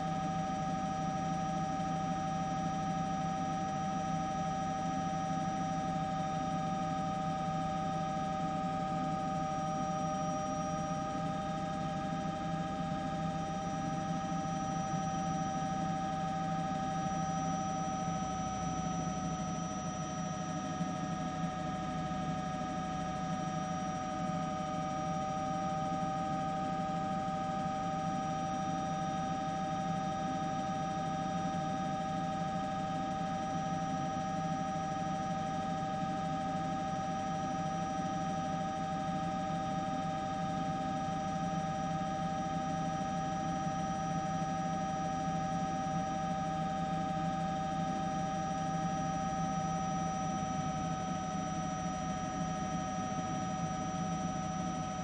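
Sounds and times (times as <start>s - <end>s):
helicopter turbine engine hum: 7.4s - 30.4s.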